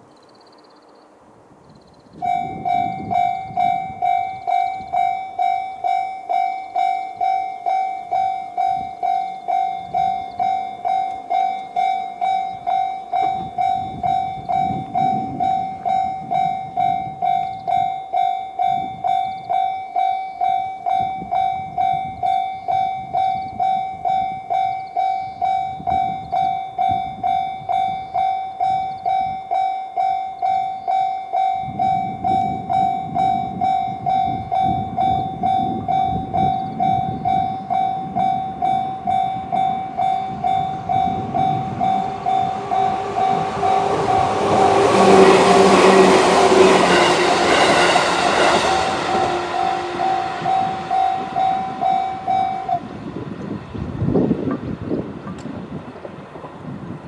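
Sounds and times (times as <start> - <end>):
level crossing warning bell: 2.2 - 53.2
electric train running: 30.4 - 57.0.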